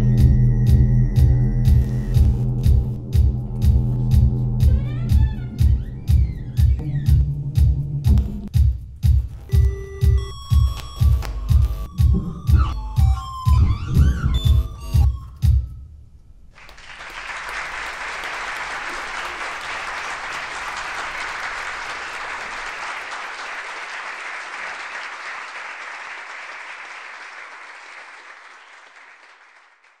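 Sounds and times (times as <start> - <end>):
audience applauding: 16.5 - 30.0.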